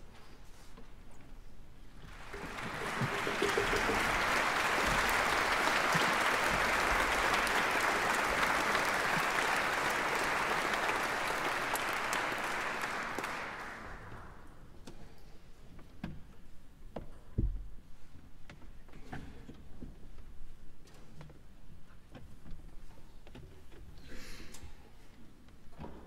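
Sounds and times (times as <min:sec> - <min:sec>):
audience applauding: 0:02.0 - 0:14.5.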